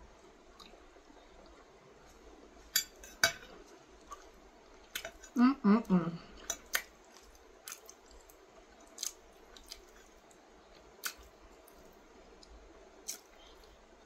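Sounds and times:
chewing: 6.3s - 13.8s.

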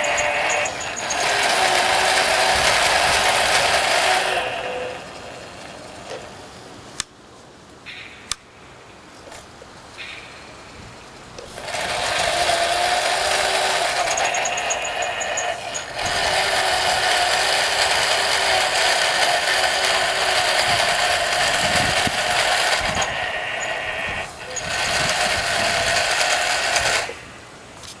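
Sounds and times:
sharp clicks: 0.0s - 4.1s, 11.4s - 16.6s
steam engines mechanical chatter: 0.0s - 6.5s, 11.4s - 27.4s
constant tone: 0.0s - 7.1s, 10.0s - 27.4s.

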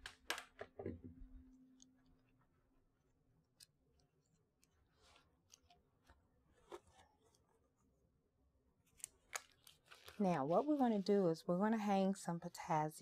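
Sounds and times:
packaging rustling: 9.0s - 10.9s.

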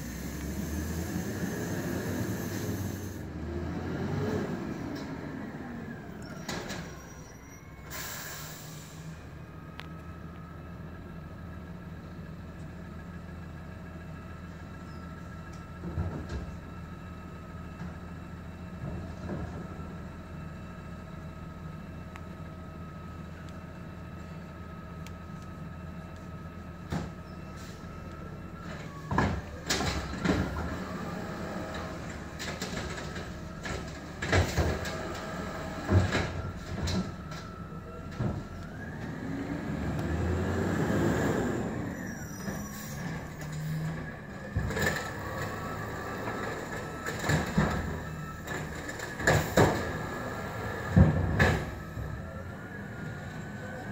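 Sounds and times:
diesel engine with hydraulic whine: 0.0s - 53.9s
bins banging against truck: 46.4s - 50.2s, 50.8s - 52.1s.

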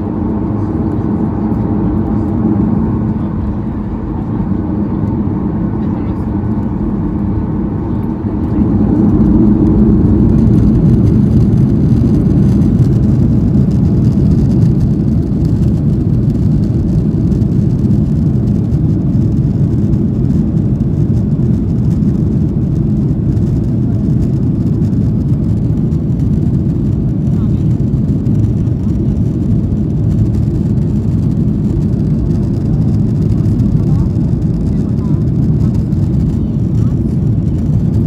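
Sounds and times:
jet engines rumbling in cabin: 0.0s - 38.0s.

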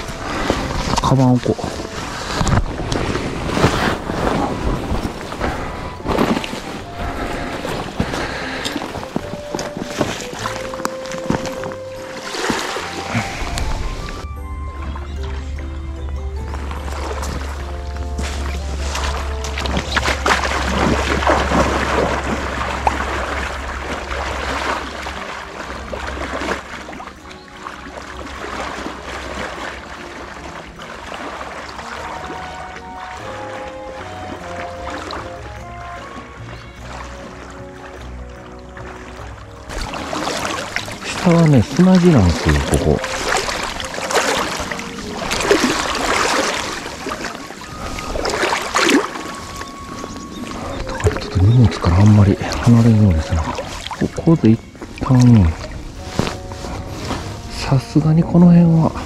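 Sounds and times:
wind rumbling on microphone: 0.0s - 12.0s
water lapping at shore: 0.0s - 59.0s.

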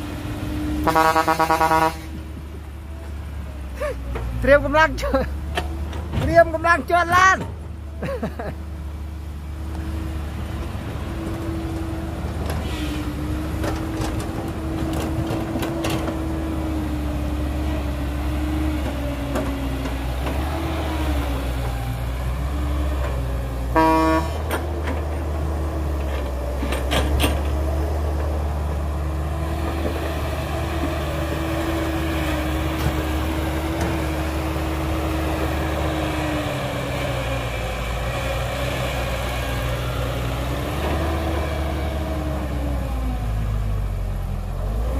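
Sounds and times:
heavy diesel engines running: 0.0s - 44.9s
vehicle horn toot: 0.8s - 2.2s, 23.7s - 24.4s.

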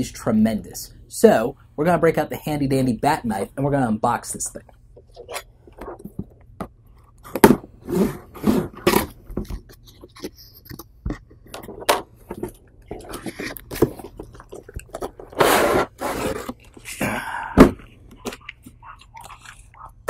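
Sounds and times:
plastic packing tray scraping: 7.3s - 9.3s, 15.1s - 16.6s
knife cutting cardboard: 15.2s - 16.6s.

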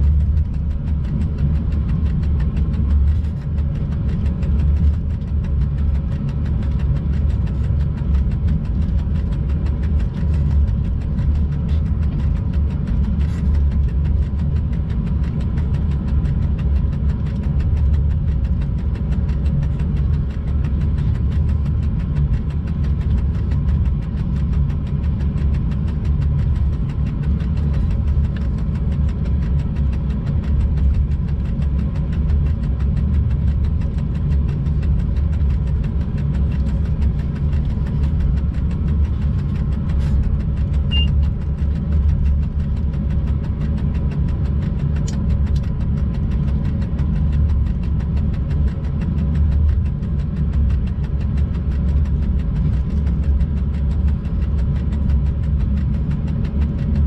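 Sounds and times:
locomotive cab rumble: 0.0s - 46.9s
faint constant hum: 0.0s - 57.0s.

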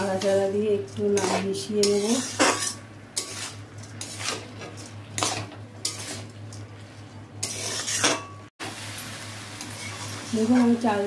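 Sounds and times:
metal spatula scraping wok: 0.0s - 6.4s, 7.4s - 8.4s, 9.6s - 11.0s
rice frying: 0.0s - 11.0s.

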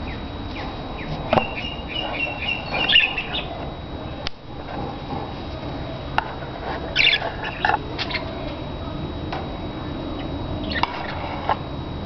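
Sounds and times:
budgerigars chirping: 1.0s - 3.6s, 6.9s - 8.2s.

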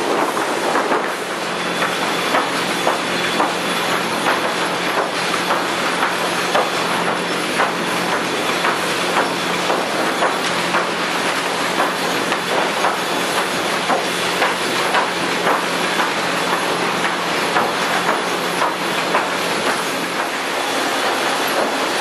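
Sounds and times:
conveyor machine din: 0.0s - 22.0s.

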